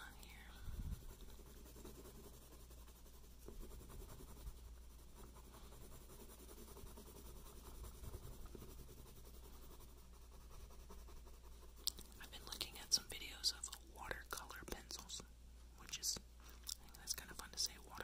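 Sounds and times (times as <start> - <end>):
pen scratching on paper: 0.2 - 13.5.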